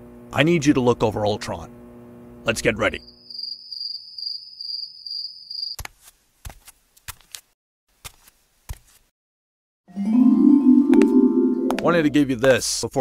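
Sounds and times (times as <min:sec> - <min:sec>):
cricket chirring: 0:02.9 - 0:05.8.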